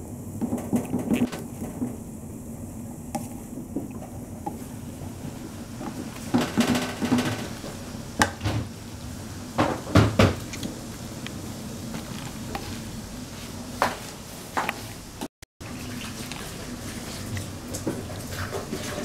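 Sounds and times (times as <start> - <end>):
spatula scraping and knocking wok: 3.1 - 8.5.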